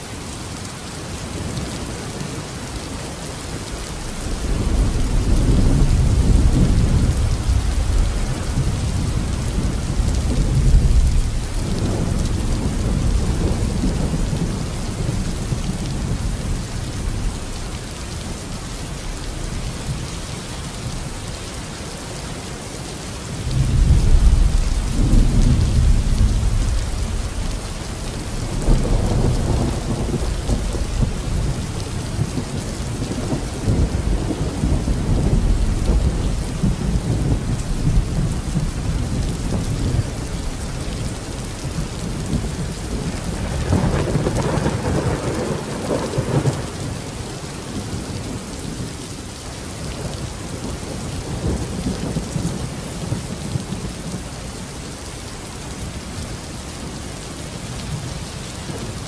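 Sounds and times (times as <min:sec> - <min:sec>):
heavy rain: 0:00.0 - 0:59.0
thunder rumbling: 0:03.7 - 0:17.6, 0:23.4 - 0:49.0.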